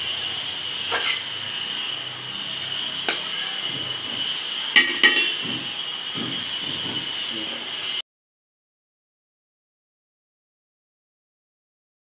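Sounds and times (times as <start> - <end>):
steady high-pitched whine: 0.0 - 8.0
spoon clinking against metal pot: 4.8 - 5.4.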